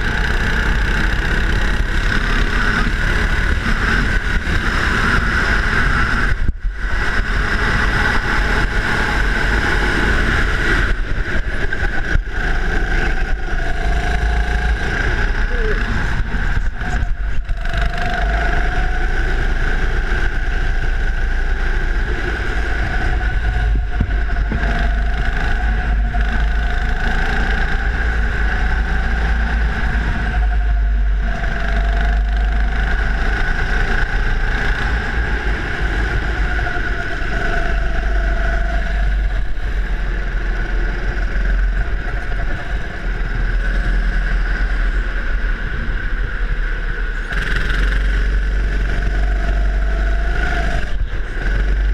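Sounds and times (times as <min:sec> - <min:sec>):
go-kart engine running: 0:00.0 - 0:51.9
wind and vibration rumble: 0:00.0 - 0:51.9.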